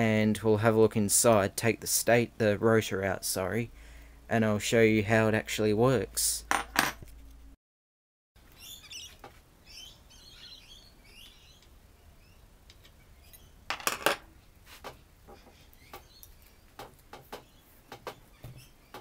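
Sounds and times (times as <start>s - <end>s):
birds chirping: 8.4s - 13.7s, 15.2s - 19.0s
metal knocks and clinks: 13.7s - 14.2s.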